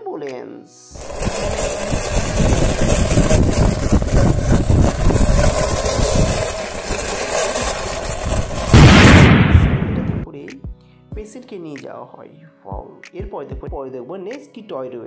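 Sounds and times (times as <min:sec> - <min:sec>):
toy wheels rolling on concrete: 0:01.0 - 0:08.8.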